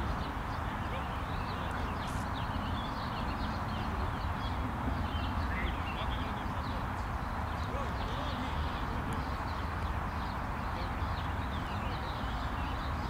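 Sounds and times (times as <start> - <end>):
songbirds chirping: 0.0 - 13.0
steady background hiss: 0.0 - 13.0.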